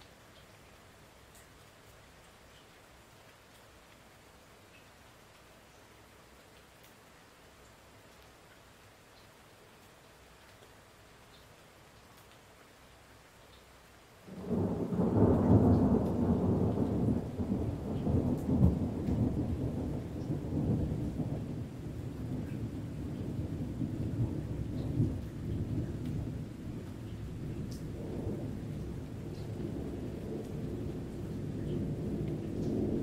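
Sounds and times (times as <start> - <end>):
thunderclap with deep rumble: 14.3 - 33.0.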